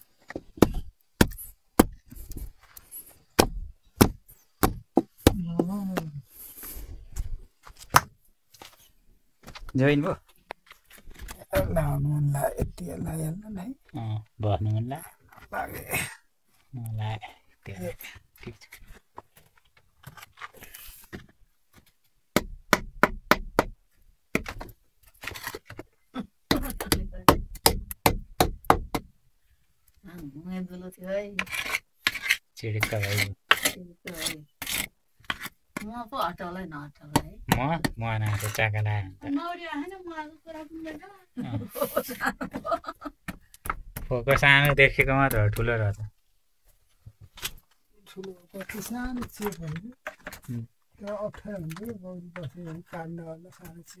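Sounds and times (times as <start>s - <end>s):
knocks on wood: 22.4s - 23.8s, 26.5s - 29.1s.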